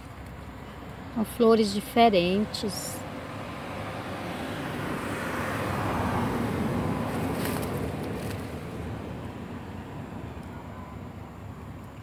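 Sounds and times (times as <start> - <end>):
vehicle passing by: 1.0 - 12.0.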